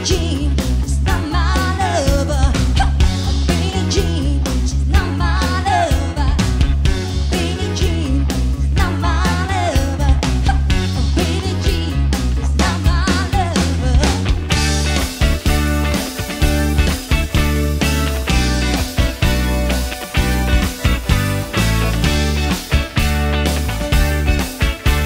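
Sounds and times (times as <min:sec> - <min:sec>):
woman singing with band: 0:00.0 - 0:06.5, 0:07.3 - 0:12.0, 0:12.6 - 0:14.2.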